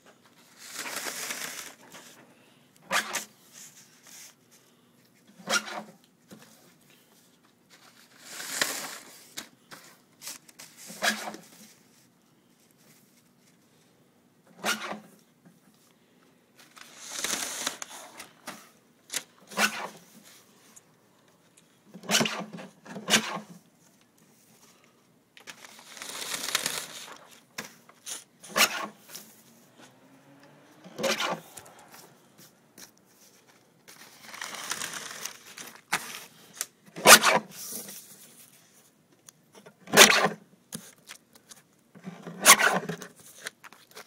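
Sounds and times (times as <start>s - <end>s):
paper sliding and rustling: 0.3s - 2.2s, 2.9s - 4.7s, 5.4s - 13.6s, 16.6s - 20.6s, 24.4s - 30.0s, 30.8s - 38.9s.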